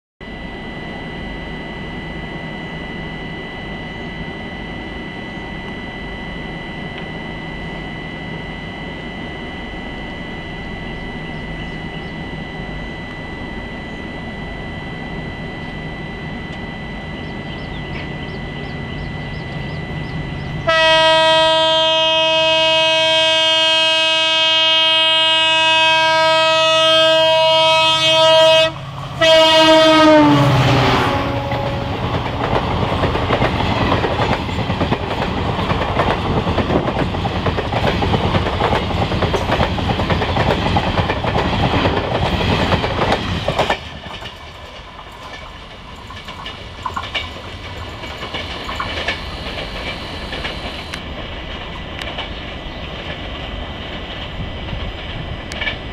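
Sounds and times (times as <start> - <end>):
train rumble: 0.3 - 55.9
locomotive horn blast: 20.4 - 32.8
train wheels clattering: 31.5 - 55.9.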